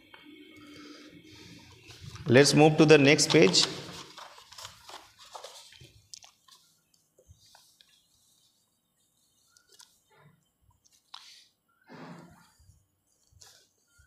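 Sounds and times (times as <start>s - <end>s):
book page turning: 3.0s - 11.5s, 12.4s - 14.0s.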